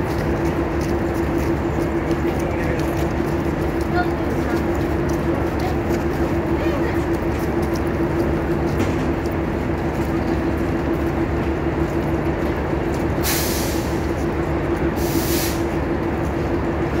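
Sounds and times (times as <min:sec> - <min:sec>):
train low hum: 0:00.0 - 0:17.0
air brake hissing: 0:13.2 - 0:14.1, 0:15.0 - 0:15.7.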